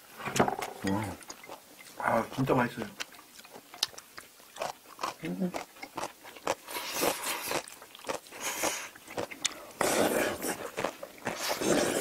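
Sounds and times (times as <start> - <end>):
chewing and biting: 2.9 - 12.0
loud slurp of noodles: 9.8 - 12.0.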